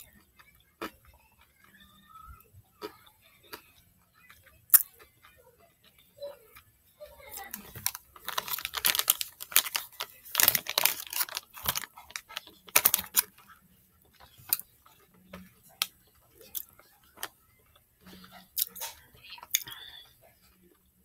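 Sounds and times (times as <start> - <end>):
wrapper crinkling: 7.3 - 13.5.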